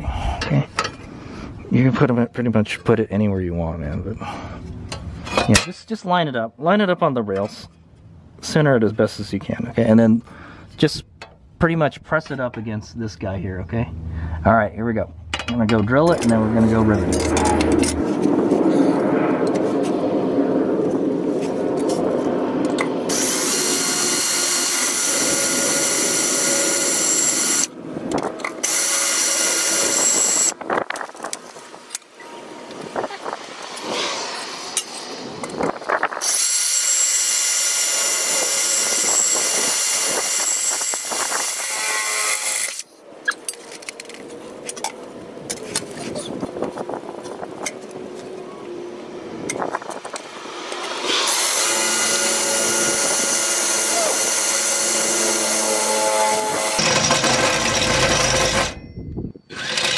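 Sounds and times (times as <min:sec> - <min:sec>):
cordless drill boring: 0:23.1 - 0:27.7, 0:28.6 - 0:30.6, 0:36.2 - 0:42.8, 0:51.1 - 0:58.8, 0:59.5 - 0:59.9.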